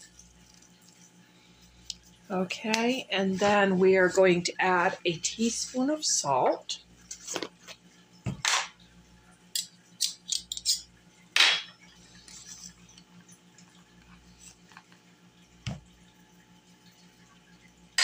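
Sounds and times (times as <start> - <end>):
spoon and container clinking: 9.6 - 10.9.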